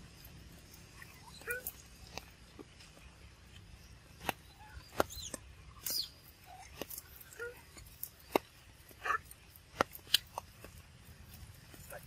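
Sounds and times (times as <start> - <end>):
animal chirps and squeaks: 0.7 - 1.9, 4.4 - 8.4.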